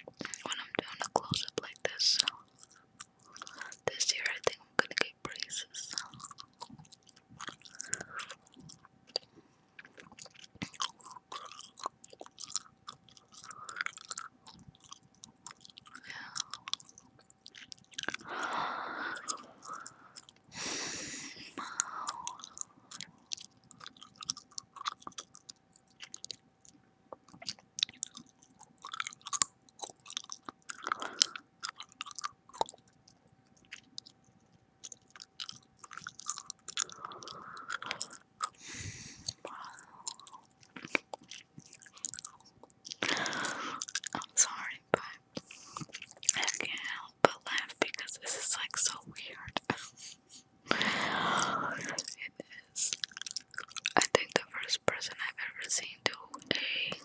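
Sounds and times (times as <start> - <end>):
gum chewing smacks: 0.0 - 3.8, 4.4 - 20.5, 21.7 - 54.4
breathy noise: 18.1 - 23.1, 36.3 - 44.6, 45.2 - 46.1, 49.6 - 52.1.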